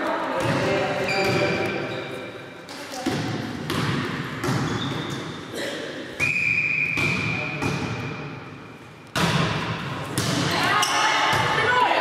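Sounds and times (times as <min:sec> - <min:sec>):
volleyball being hit: 0:03.0 - 0:05.3, 0:06.2 - 0:08.2, 0:09.1 - 0:11.6.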